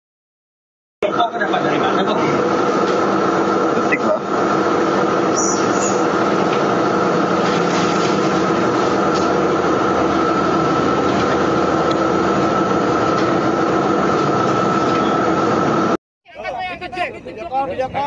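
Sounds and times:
high whine: 1.0 - 16.0
machine rushing hum: 1.0 - 16.0.

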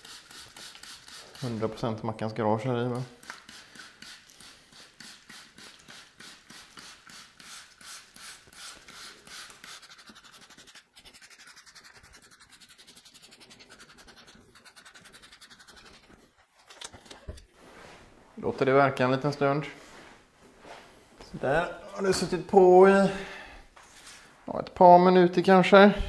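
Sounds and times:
spray bottle squirting: 0.0 - 1.6, 3.2 - 10.5.

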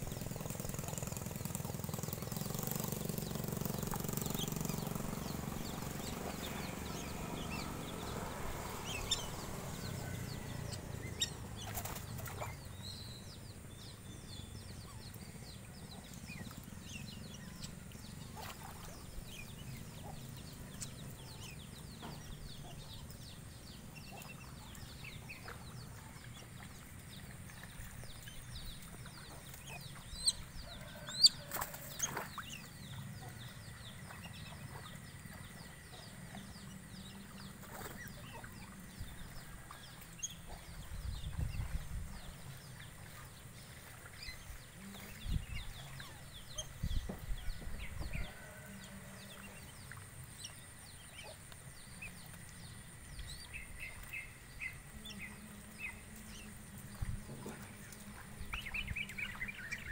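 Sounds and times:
ducks flapping wings: 11.1 - 12.6.

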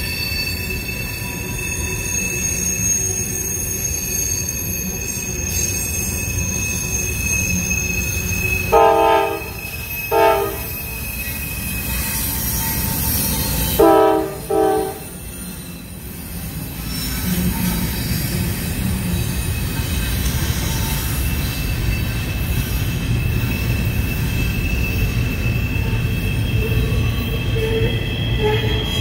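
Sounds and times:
freight train rumbling: 0.0 - 29.0
wheel flange squeal: 0.0 - 29.0
locomotive air horn: 8.7 - 10.8, 13.7 - 15.2.

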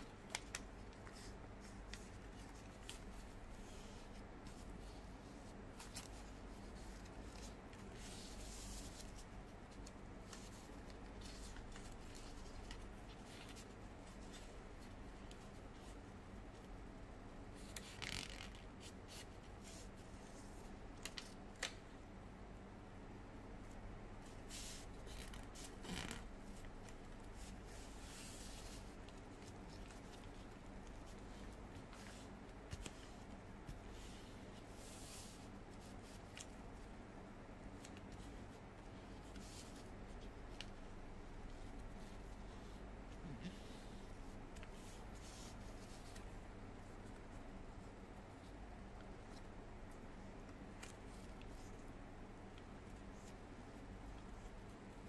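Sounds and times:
paper rustling and crinkling: 0.0 - 16.0
low steady hum: 0.0 - 55.0.

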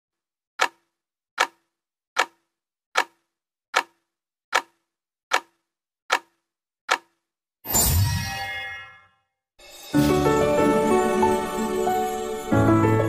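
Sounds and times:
clock-like ticks with low ring: 0.6 - 0.8, 1.4 - 1.6, 2.2 - 2.4, 3.0 - 3.2, 3.8 - 7.2.

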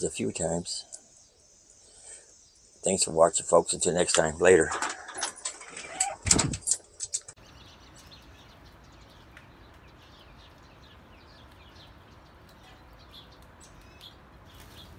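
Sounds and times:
birds chirping: 0.0 - 14.9
rattling clicks: 4.1 - 7.4.

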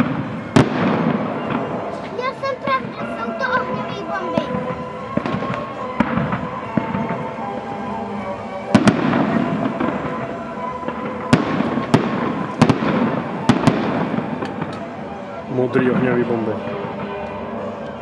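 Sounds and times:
fireworks crackling: 0.0 - 18.0.

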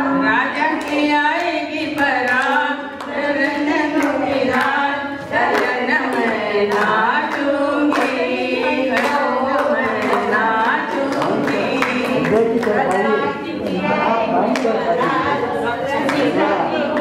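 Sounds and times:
group of people singing: 0.0 - 17.0
sharp hand claps: 5.5 - 8.2.

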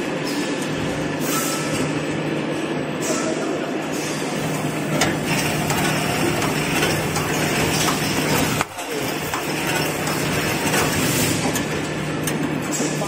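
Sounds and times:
machinery clattering: 4.3 - 13.0.

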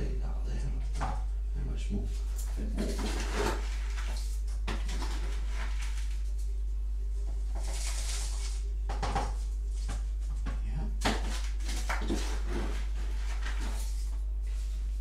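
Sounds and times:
steady low hum: 0.0 - 15.0
compost rustling and scraping: 2.0 - 6.5, 7.2 - 8.7, 11.2 - 15.0.

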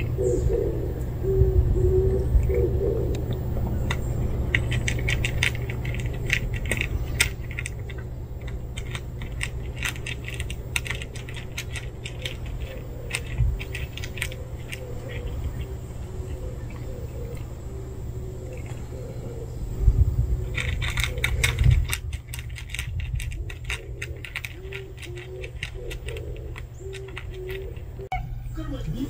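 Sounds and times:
cat crunching dry kibble: 3.6 - 17.5, 20.4 - 28.0.

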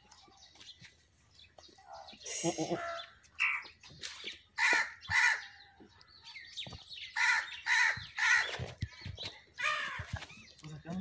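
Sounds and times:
crows cawing: 4.6 - 5.6, 7.2 - 8.6, 9.6 - 10.2.

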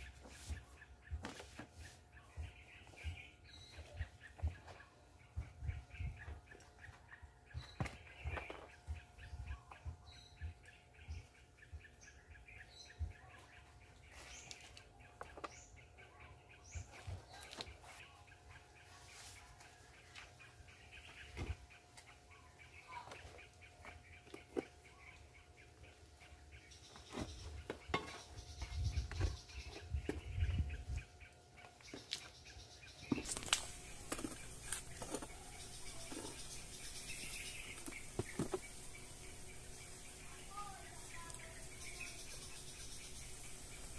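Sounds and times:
steady outdoor hiss: 0.0 - 43.9
trowel tapping and scraping soil: 23.0 - 25.1, 26.9 - 30.7, 31.7 - 39.0
trowel scraping soil: 33.0 - 38.9.

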